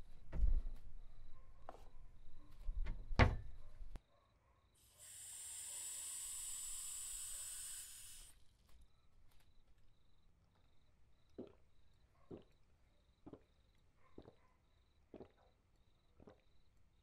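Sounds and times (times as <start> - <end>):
cabinet door knocking and clicking: 2.8 - 3.6
steady hiss: 4.8 - 8.4.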